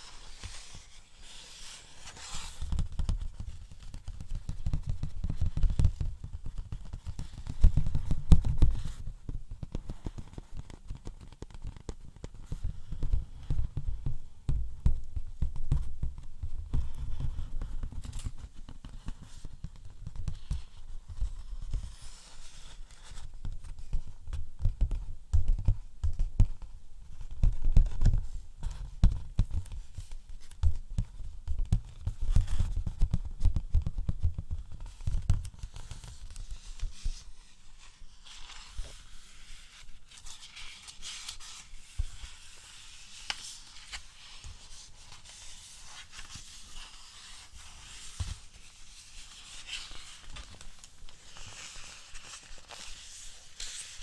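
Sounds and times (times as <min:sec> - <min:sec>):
scratching and rustling: 0:00.0 - 0:09.1, 0:27.8 - 0:54.0.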